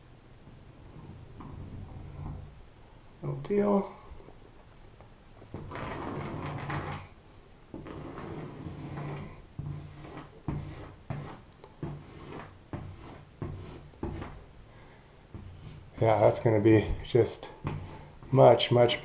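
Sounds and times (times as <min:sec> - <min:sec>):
plastic tube scraping ceiling: 0:05.5 - 0:07.1, 0:07.7 - 0:14.4.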